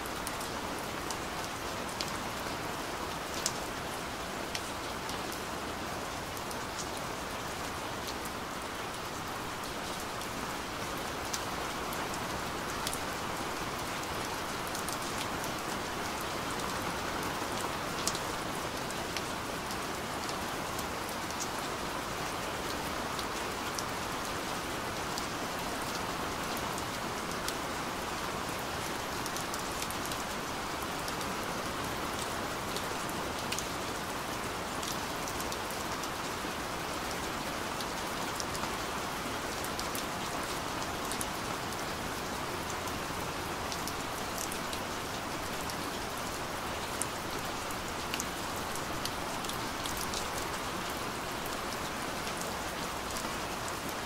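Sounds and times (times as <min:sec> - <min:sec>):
rain falling steadily: 0:00.0 - 0:54.0.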